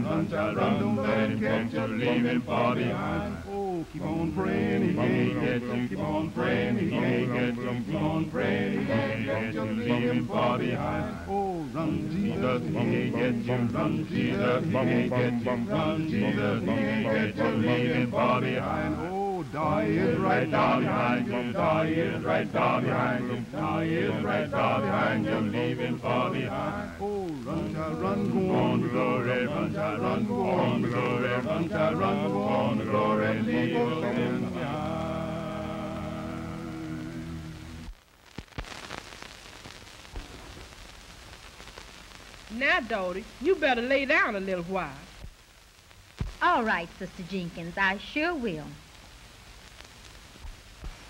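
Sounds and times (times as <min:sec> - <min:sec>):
male voices singing unaccompanied: 0:00.0 - 0:37.9.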